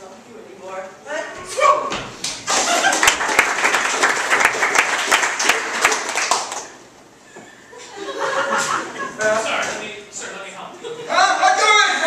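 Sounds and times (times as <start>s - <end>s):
audience applauding: 2.5s - 6.8s.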